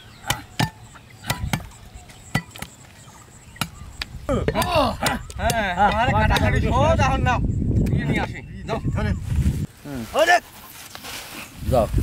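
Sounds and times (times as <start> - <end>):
cleavers chopping bones on wood: 0.2 - 2.8, 3.6 - 6.7.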